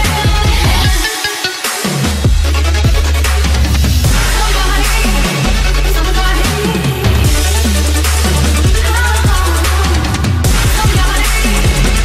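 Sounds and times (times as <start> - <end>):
dubstep music with heavy bass: 0.0 - 12.0.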